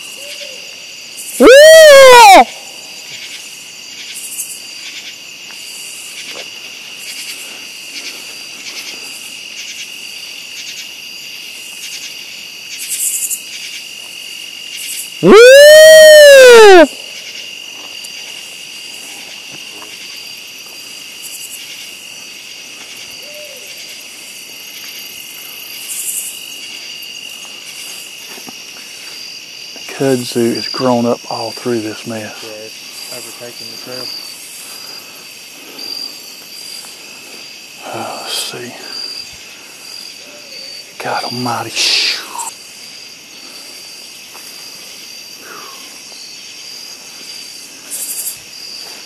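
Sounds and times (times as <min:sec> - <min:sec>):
night insect chorus: 0:00.0 - 0:49.0
loud whooping call: 0:01.4 - 0:02.7, 0:15.2 - 0:17.0.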